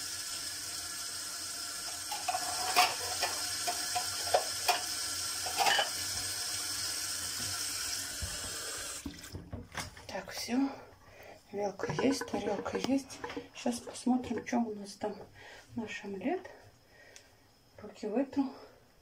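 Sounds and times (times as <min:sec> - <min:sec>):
tap running into metal sink: 0:01.9 - 0:06.4, 0:07.3 - 0:09.9, 0:11.8 - 0:14.6
crockery clinking: 0:02.1 - 0:06.1.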